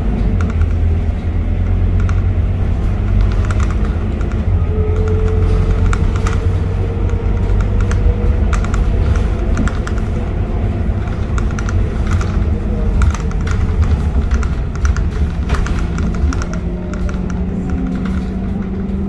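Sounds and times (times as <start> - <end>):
bus engine and road drone: 0.0 - 19.0
interior panels rattling: 0.0 - 19.0.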